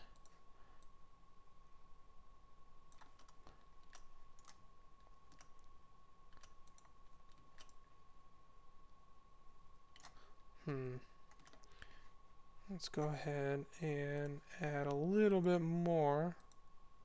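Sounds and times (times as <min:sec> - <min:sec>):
faint steady tone: 0:00.0 - 0:17.0
mouse and keyboard clicks: 0:06.3 - 0:07.8.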